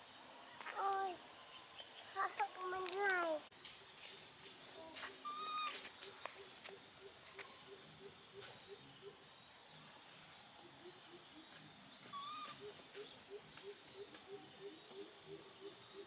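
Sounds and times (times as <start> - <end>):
baby monkey squeaky call: 5.2 - 5.8, 12.1 - 12.8.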